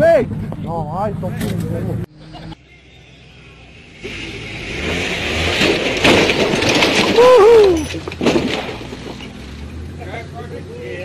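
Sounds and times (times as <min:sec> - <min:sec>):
vehicle crashing against rock: 0:04.0 - 0:09.8
person shouting: 0:07.2 - 0:07.9.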